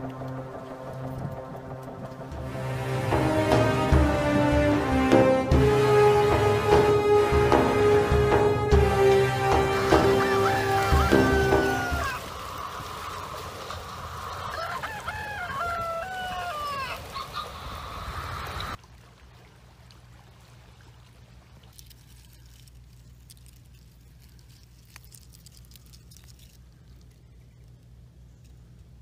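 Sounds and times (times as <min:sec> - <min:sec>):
rooster crowing: 0:09.5 - 0:12.3, 0:14.3 - 0:17.4.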